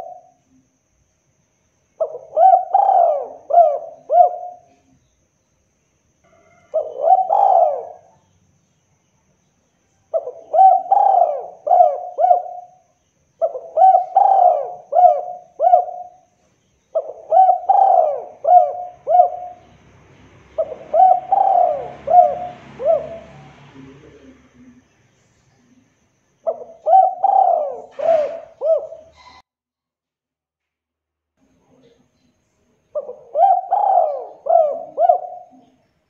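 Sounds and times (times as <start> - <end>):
dove cooing: 0.0 - 0.4, 2.0 - 4.9, 6.4 - 8.2, 10.1 - 19.8, 20.4 - 24.8, 26.4 - 29.4, 32.9 - 35.8.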